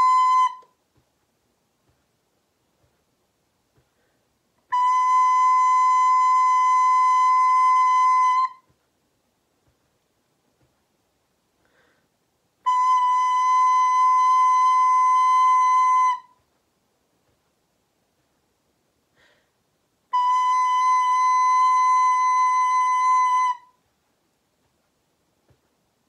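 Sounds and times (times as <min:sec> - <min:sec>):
recorder playing long note: 0:00.0 - 0:00.8, 0:04.7 - 0:08.7, 0:12.6 - 0:16.4, 0:20.1 - 0:23.8.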